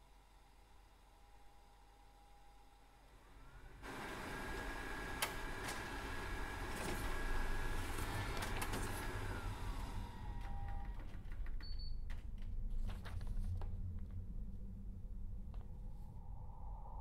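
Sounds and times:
low rumble: 0:12.5 - 0:17.0.

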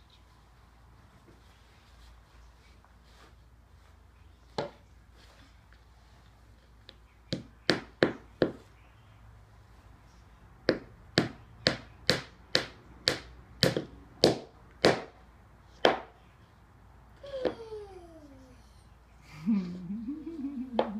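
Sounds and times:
hammer knocking dowels into wood: 0:10.7 - 0:15.2.

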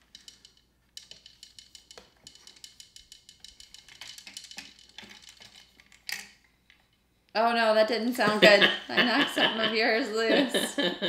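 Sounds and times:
plastic gears clicking: 0:00.0 - 0:06.8.

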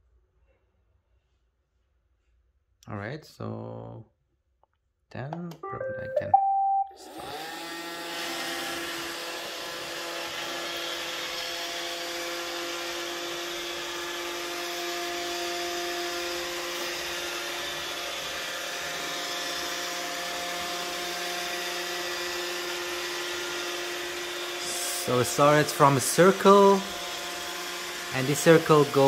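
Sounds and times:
robotic vacuum whining: 0:07.0 - 0:29.0.

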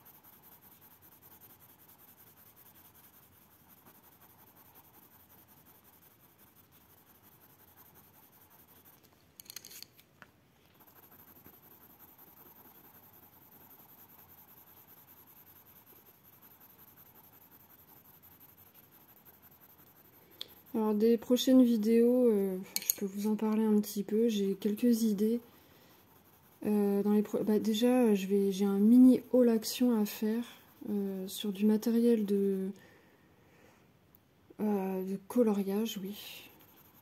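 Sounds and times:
pencil scratching on paper: 0:00.0 - 0:09.8, 0:10.8 - 0:32.5, 0:35.4 - 0:37.0.

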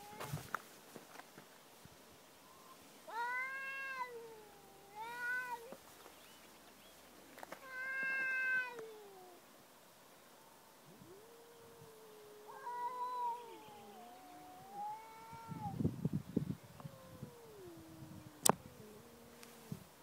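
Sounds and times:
cat yowling: 0:03.1 - 0:05.7, 0:07.7 - 0:09.4, 0:11.0 - 0:15.8, 0:16.8 - 0:19.8
low cat moan: 0:10.9 - 0:15.8, 0:16.8 - 0:19.9.

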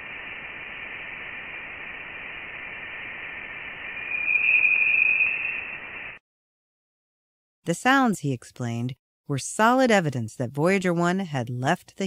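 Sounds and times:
narrow high hiss: 0:00.0 - 0:06.2
high tone: 0:03.9 - 0:06.2.

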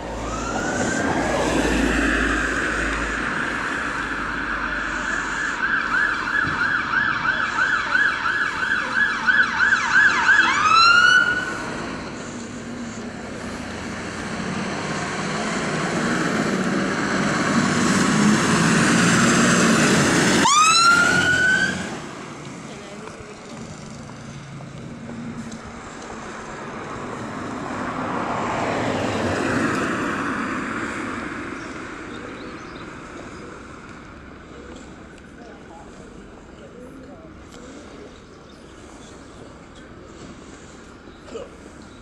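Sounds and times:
fire engine siren: 0:00.0 - 0:11.9, 0:15.1 - 0:22.1
fire engine engine: 0:00.0 - 0:42.0.

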